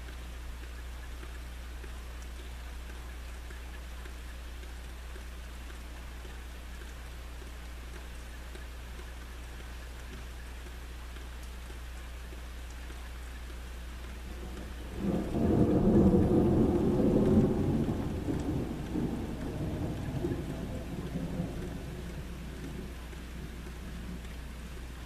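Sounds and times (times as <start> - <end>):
steady rain: 0.0 - 25.0
thunder rumbling: 14.4 - 24.3.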